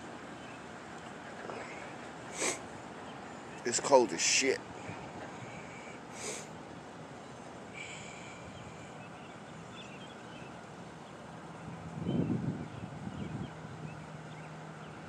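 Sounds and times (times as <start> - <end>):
outdoor background noise: 0.0 - 15.0
person sniffing: 2.4 - 2.6, 6.2 - 6.5.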